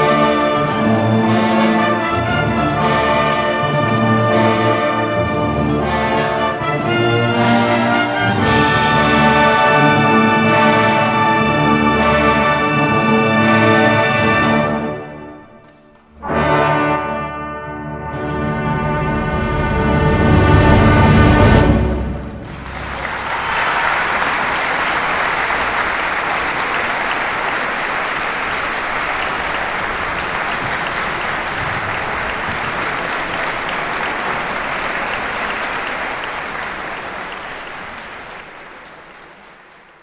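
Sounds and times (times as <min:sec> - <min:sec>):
audience applause: 0:08.1 - 0:15.3, 0:22.2 - 0:40.0
wind band final chord: 0:08.5 - 0:15.2.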